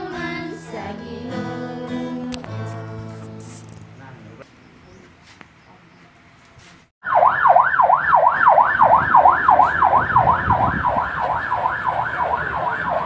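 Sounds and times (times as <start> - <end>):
siren yelping: 7.0 - 13.0.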